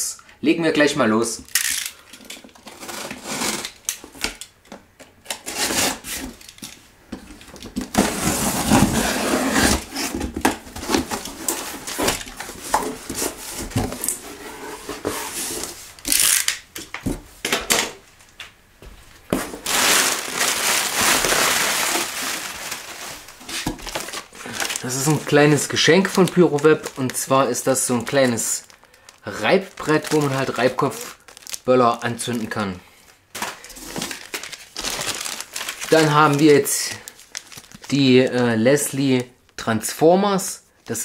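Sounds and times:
cardboard flaps folding: 0:07.5 - 0:16.2, 0:19.3 - 0:28.8, 0:33.3 - 0:37.9
packing tape slit and pulled: 0:16.0 - 0:16.6
plastic packing crinkling: 0:19.3 - 0:39.6.

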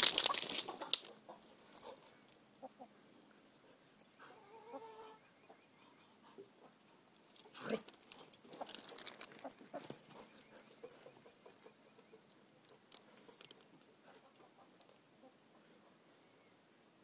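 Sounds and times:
patters and scrapes on gravel: 0:00.0 - 0:02.0, 0:07.3 - 0:10.1.

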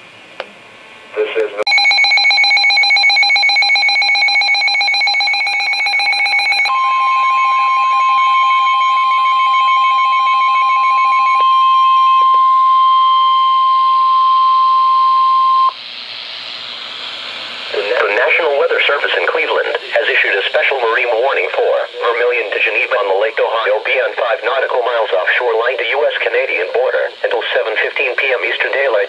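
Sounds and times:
pulsing electronic alarm beep: 0:01.7 - 0:15.8
steady alarm tone: 0:01.7 - 0:16.4.

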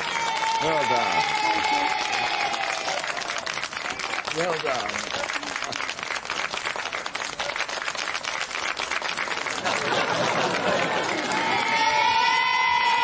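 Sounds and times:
excited voices: 0:00.0 - 0:05.7, 0:09.6 - 0:13.0
audience applauding: 0:00.0 - 0:13.0.

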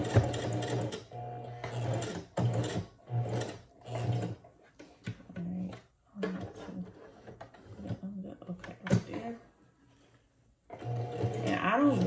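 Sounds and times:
sewing machine stitching: 0:00.0 - 0:04.5, 0:10.7 - 0:12.0.

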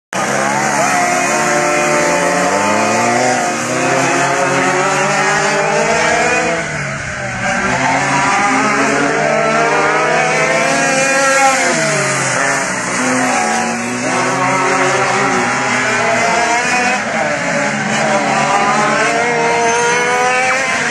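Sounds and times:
go-kart engines revving: 0:00.1 - 0:20.9.

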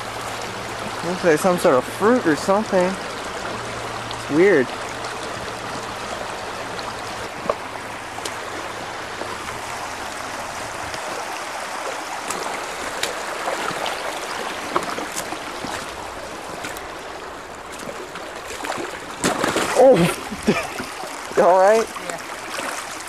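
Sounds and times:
creek water running over rocks: 0:00.0 - 0:23.0.

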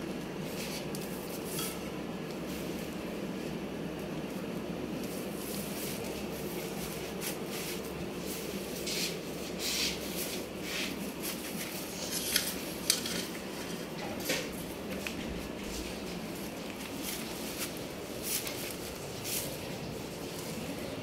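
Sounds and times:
steady low hum: 0:00.0 - 0:21.0
goat scraping and rustling: 0:05.0 - 0:20.7.

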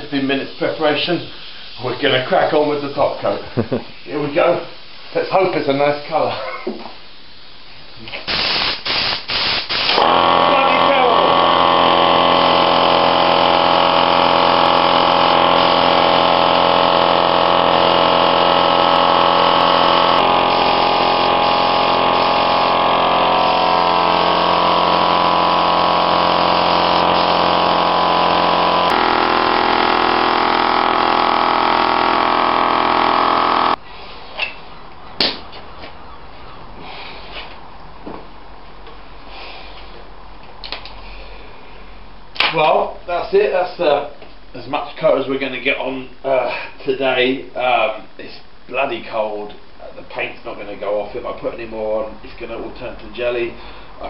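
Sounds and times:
air compressor running: 0:08.3 - 0:33.8
spray gun hissing: 0:08.3 - 0:33.8.

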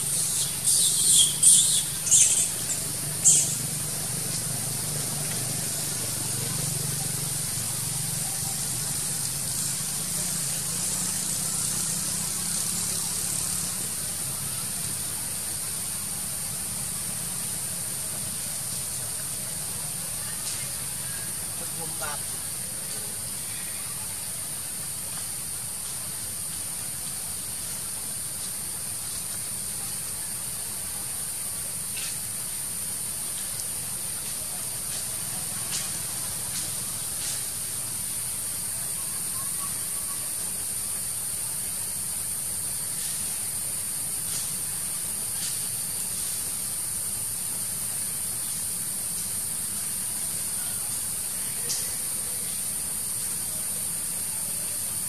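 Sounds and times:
forest insects droning: 0:00.0 - 0:55.0.

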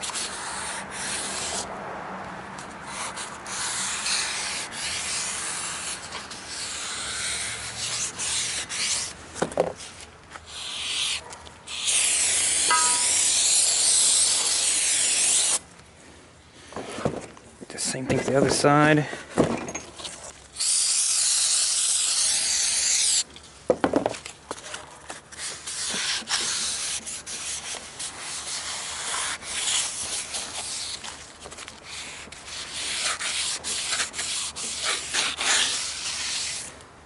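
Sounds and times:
cardboard rubbing on metal: 0:25.2 - 0:36.7.

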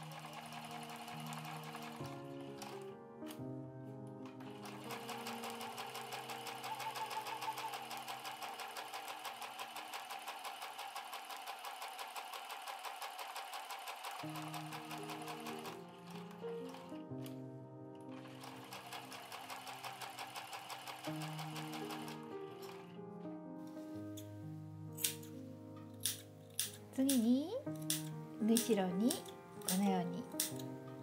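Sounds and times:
sewing machine stitching: 0:00.0 - 0:03.4, 0:04.3 - 0:17.3, 0:18.1 - 0:23.0.

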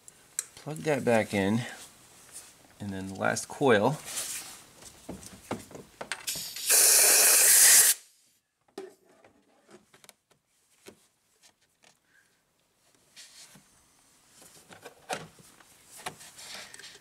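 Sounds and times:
air blow gun hissing: 0:06.3 - 0:08.0.

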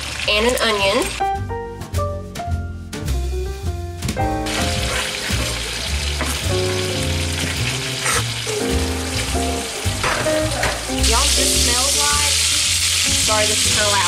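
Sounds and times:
chicken sizzling in oil: 0:00.0 - 0:01.2, 0:04.3 - 0:14.0
background music with bass: 0:00.3 - 0:14.0.

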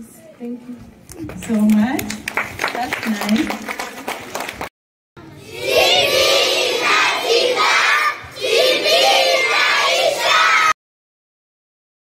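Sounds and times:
crowd of children shouting and singing: 0:05.2 - 0:10.8.

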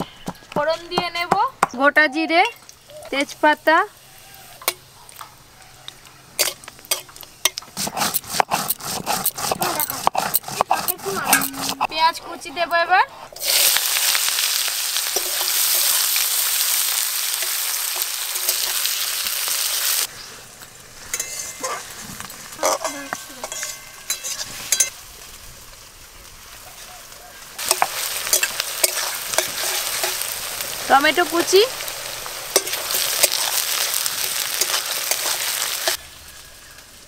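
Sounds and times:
onions sizzling in hot oil: 0:02.2 - 0:37.0
taps and scrapes: 0:06.4 - 0:11.9
metal spatula stirring: 0:06.4 - 0:12.0, 0:21.1 - 0:21.9, 0:22.6 - 0:24.9, 0:27.6 - 0:30.4, 0:32.5 - 0:36.0.

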